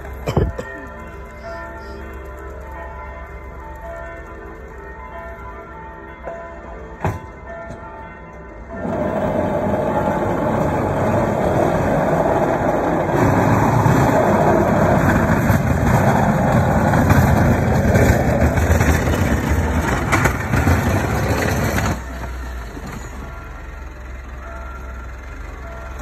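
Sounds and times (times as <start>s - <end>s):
diesel engine rumbling: 8.7s - 26.0s
plow blade pushing snow: 8.7s - 26.0s.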